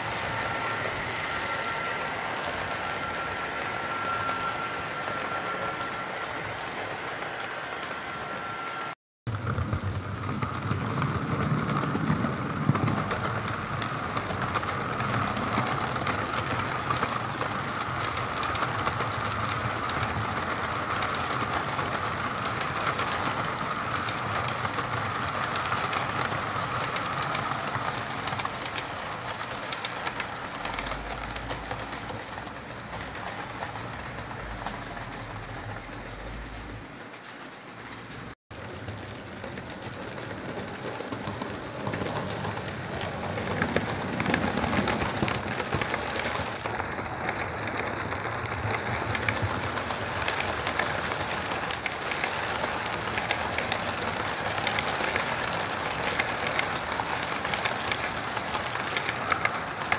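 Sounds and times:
model train whining: 0.0s - 37.2s, 38.6s - 59.9s
wheels clicking on rails: 0.0s - 59.9s.

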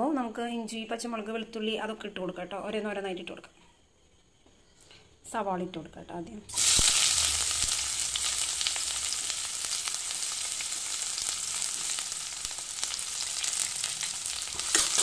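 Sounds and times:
onions sizzling in oil: 6.5s - 15.0s
small crackles of frying: 6.5s - 15.0s.

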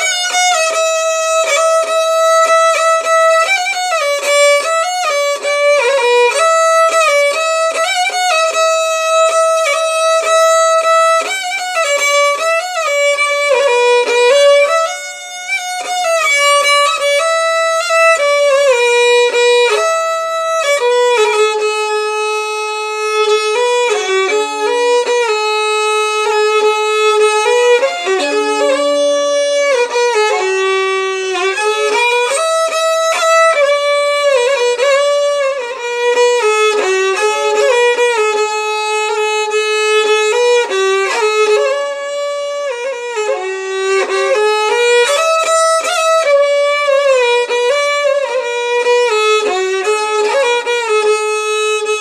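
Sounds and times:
solo violin playing slow melody: 0.0s - 52.0s.

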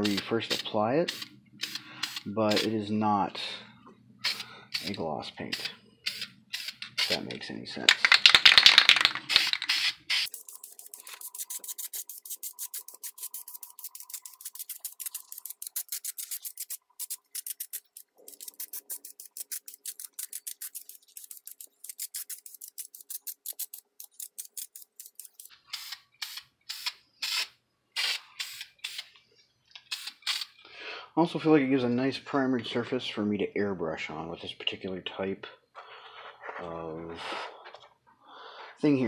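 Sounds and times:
aerosol spray can spraying: 1.1s - 2.6s, 8.7s - 29.1s, 29.9s - 30.5s.

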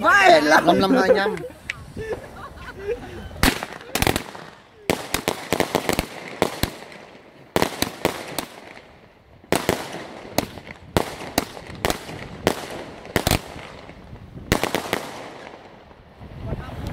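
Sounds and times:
firework bangs: 3.4s - 16.6s.

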